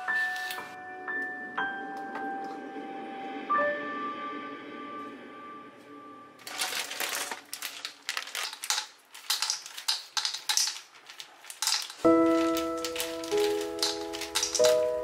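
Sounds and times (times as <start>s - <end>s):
plastic bag crinkling: 6.4s - 15.0s
sugar lumps clicking: 7.6s - 15.0s.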